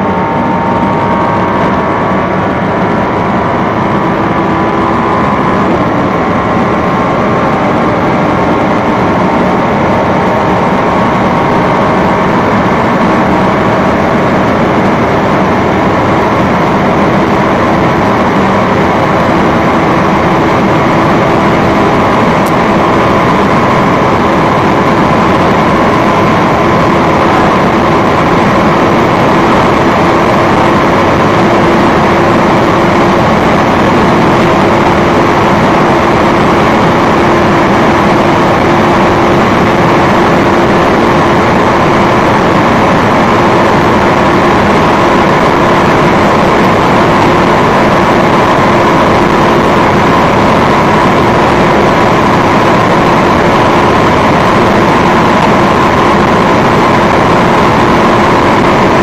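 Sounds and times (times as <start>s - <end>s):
car engine at high revs: 0.0s - 59.0s.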